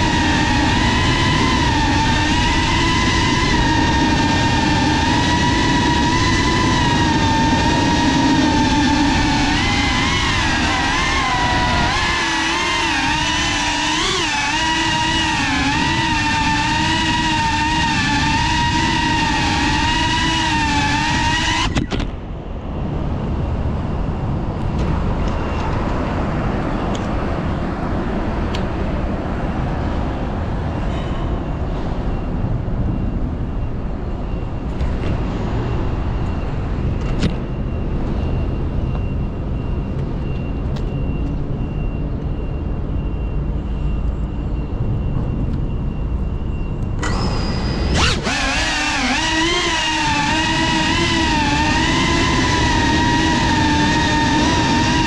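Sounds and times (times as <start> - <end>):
drone motors whining: 0.0 - 22.2, 32.1 - 55.0
road traffic noise: 0.0 - 55.0.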